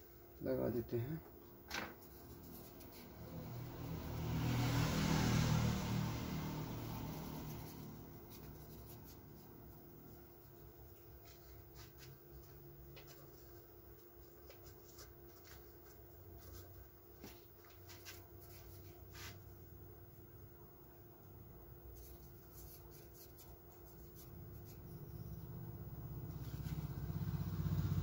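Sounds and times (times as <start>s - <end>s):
faint steady hum: 0.0s - 4.2s, 5.8s - 28.0s
hand rubbing paper: 2.0s - 3.5s, 6.7s - 19.5s, 21.9s - 25.5s, 26.3s - 27.1s.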